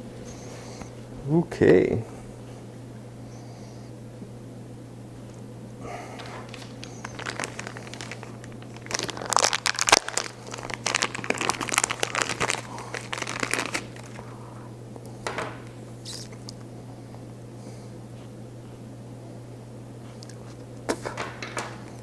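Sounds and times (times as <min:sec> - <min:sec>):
steady low hum: 0:00.0 - 0:22.0
material crinkling and rustling: 0:06.2 - 0:14.2.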